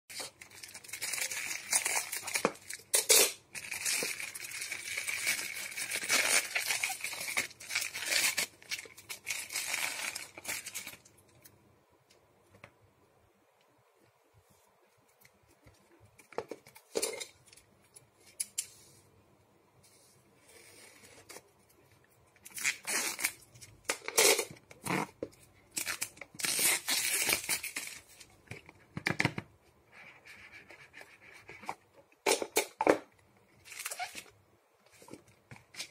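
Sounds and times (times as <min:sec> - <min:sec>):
plastic crinkling: 0:00.1 - 0:11.4.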